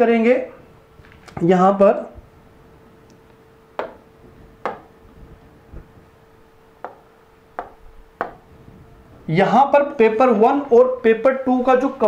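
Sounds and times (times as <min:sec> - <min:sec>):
faint steady hum: 0:00.0 - 0:12.0
taps on a display screen: 0:03.8 - 0:04.9, 0:06.8 - 0:08.4.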